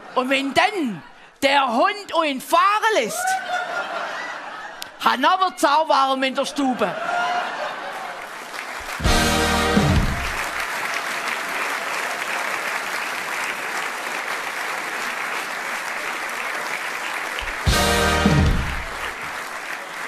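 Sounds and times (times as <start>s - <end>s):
audience applauding: 7.2s - 20.0s
band playing loud chord: 9.0s - 10.5s, 17.4s - 19.1s.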